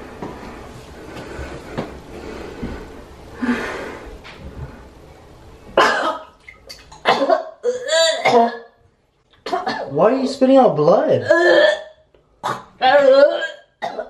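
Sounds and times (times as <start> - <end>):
woman harsh cough: 5.8 - 6.3, 7.0 - 8.8, 11.2 - 14.0.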